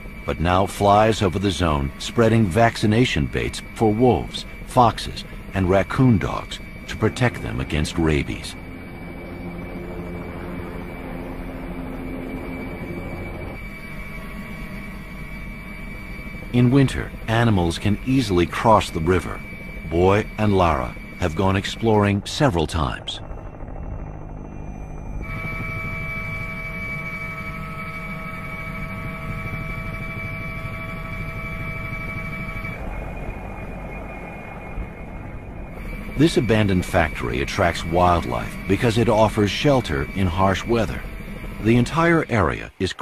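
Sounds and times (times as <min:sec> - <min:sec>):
helicopter engine and rotor noise: 0:00.0 - 0:43.0
high turbine whine: 0:00.0 - 0:43.0.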